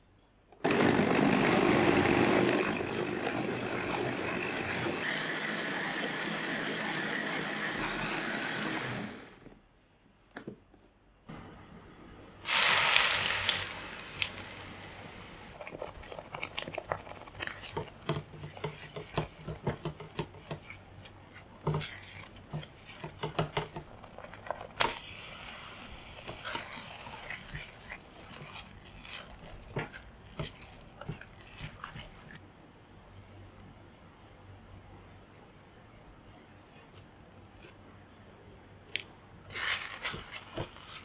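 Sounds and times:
paste sizzling in hot oil: 12.4 - 20.6, 24.7 - 32.4
spatula scraping a pan: 15.6 - 24.9, 25.8 - 32.4.

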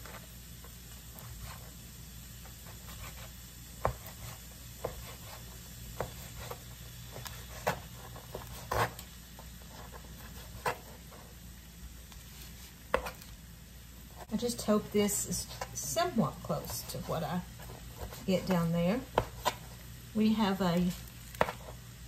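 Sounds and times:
food sizzling in a frying pan: 0.0 - 22.0.

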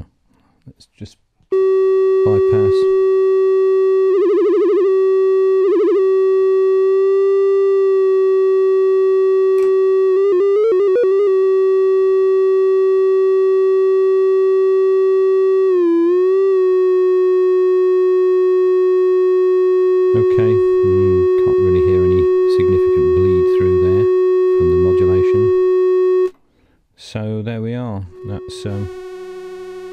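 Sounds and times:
buzzy synthesizer note: 1.5 - 26.3, 28.0 - 29.9
click: 9.6 - 9.8.

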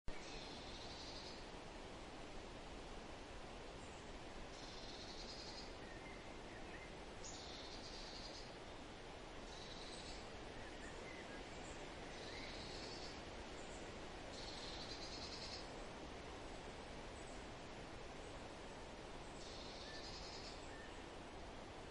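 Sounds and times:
faint bird chirps: 0.1 - 1.5, 3.8 - 15.8, 19.2 - 21.1
steady hiss: 0.1 - 21.9.

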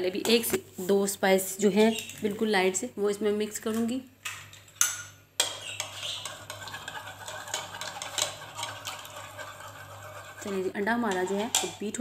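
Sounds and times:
spoon whisking eggs in bowl: 5.4 - 12.0.

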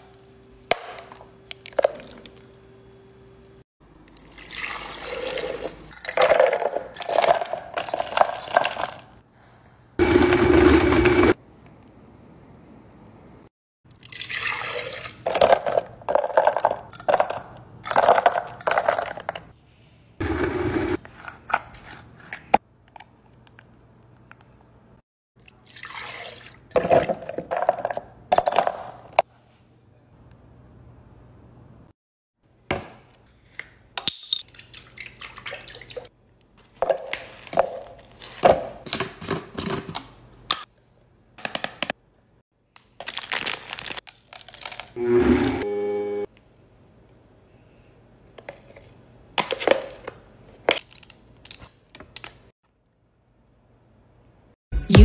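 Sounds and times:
milk pouring and splashing: 4.1 - 6.1, 14.0 - 15.4, 25.5 - 27.0, 34.5 - 36.1.

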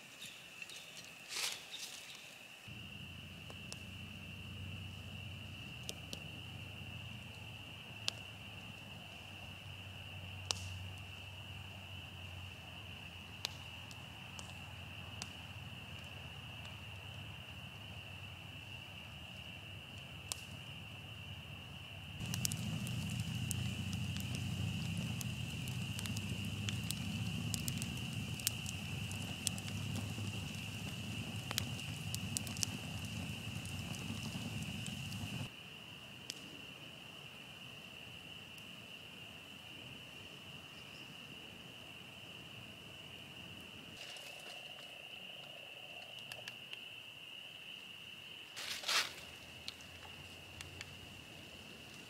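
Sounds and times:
campfire crackling: 0.5 - 38.8, 41.7 - 52.0
frogs chirping: 20.7 - 36.0.

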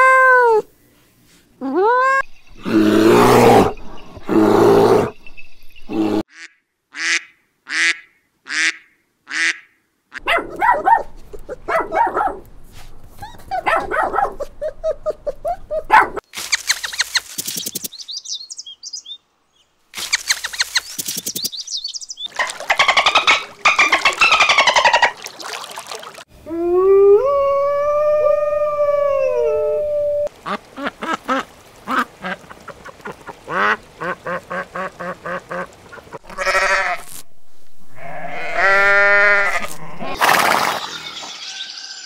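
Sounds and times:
dog barking and yelping: 10.2 - 12.5, 13.2 - 16.2
short evenly spaced animal calls: 20.0 - 25.5.

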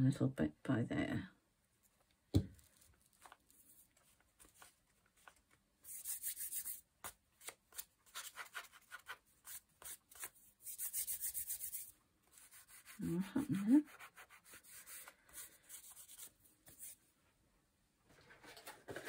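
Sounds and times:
hands rubbing paper: 2.6 - 17.0.

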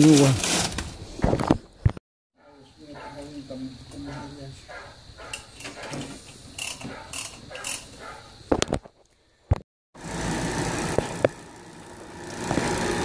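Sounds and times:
metal parts clicking and scraping: 5.3 - 8.0
vacuum pump motor running: 10.0 - 13.0.

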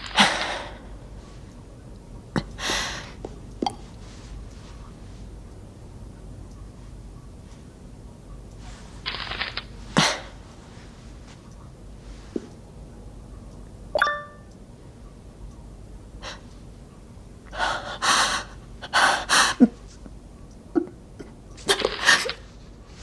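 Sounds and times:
computer notification chime: 14.0 - 14.5.

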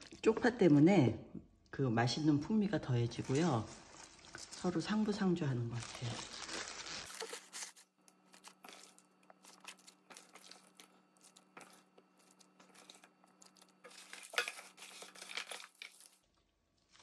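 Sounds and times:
wet squishes of vegetables: 2.9 - 17.0
rustling: 3.1 - 7.8.

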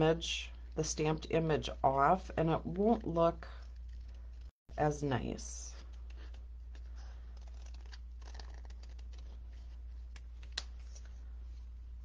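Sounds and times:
paper rustling: 5.8 - 11.3.

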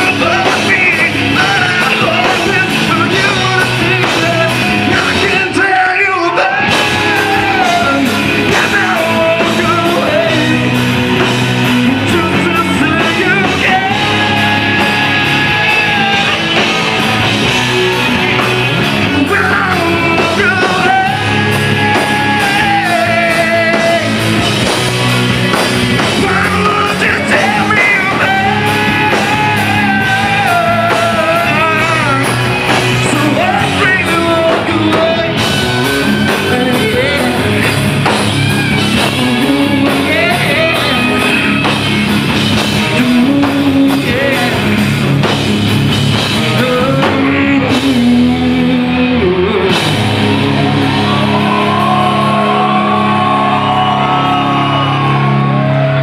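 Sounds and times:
man singing: 0.0 - 24.8, 25.9 - 45.4, 46.1 - 53.0
bass guitar: 0.0 - 56.0
drums: 0.0 - 56.0
electric guitars: 0.0 - 56.0.

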